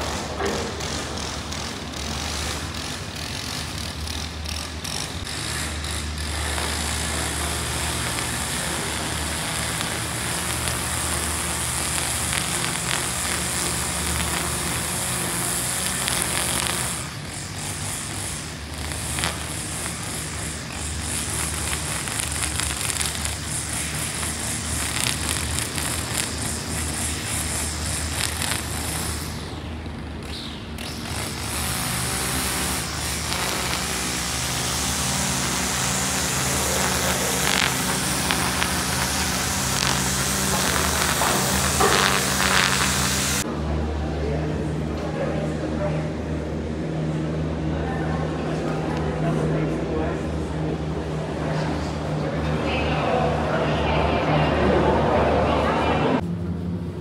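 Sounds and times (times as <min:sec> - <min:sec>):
vehicle hum and hiss: 0:00.0 - 0:57.0.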